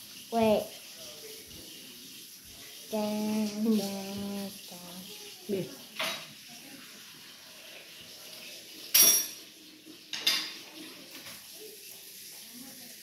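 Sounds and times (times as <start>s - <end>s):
dishes clinking: 6.0s - 6.4s, 8.8s - 11.5s.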